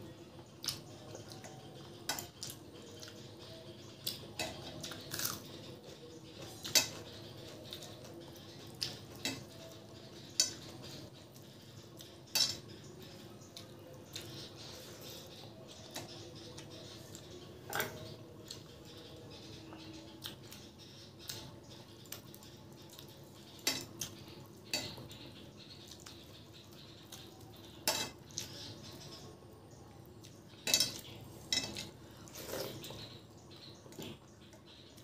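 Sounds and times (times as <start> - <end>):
clinks and scrapes on metal plate: 30.6 - 33.1.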